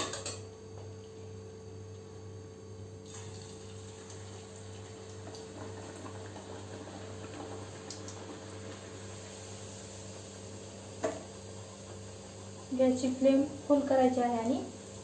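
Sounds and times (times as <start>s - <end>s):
low steady hum: 0.0s - 15.0s
frying in hot oil: 3.0s - 15.0s.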